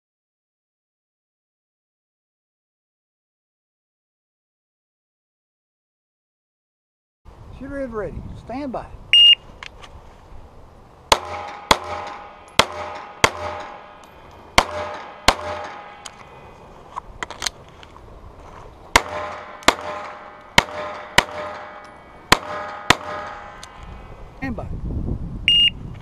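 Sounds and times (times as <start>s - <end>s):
shot timer beep: 9.2s - 9.4s, 25.5s - 25.8s
pistol shots: 11.1s - 16.2s, 18.9s - 23.8s.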